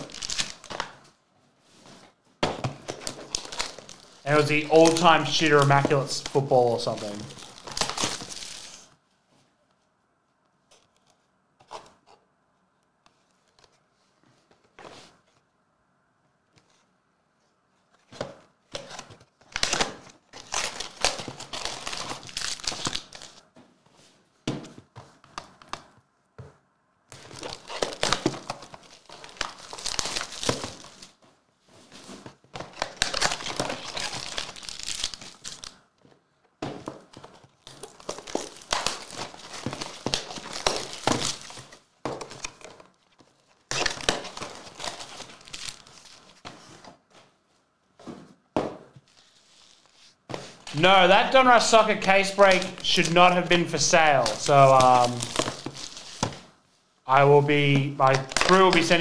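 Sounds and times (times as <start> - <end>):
foil wrappers crinkling and tearing: 0.0 - 1.0, 2.9 - 8.9, 19.4 - 23.4, 27.2 - 31.2, 32.1 - 35.8, 37.1 - 46.4, 50.6 - 56.4, 57.6 - 59.0.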